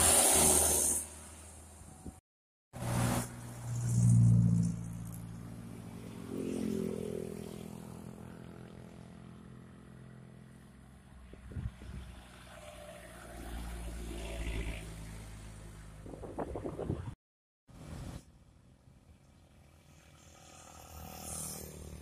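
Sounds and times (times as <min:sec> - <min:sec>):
car engine passing: 0:19.9 - 0:22.0.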